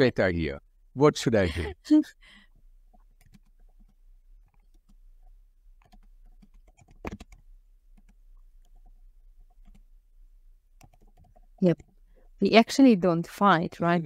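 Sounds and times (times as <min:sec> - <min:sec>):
keyboard key clicks: 0:05.8 - 0:07.4.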